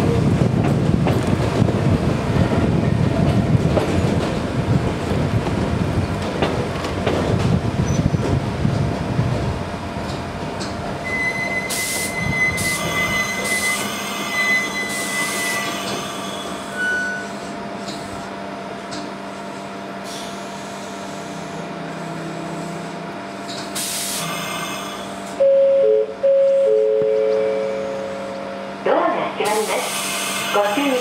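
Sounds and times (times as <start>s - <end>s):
high wheel squeal: 11.0s - 17.5s.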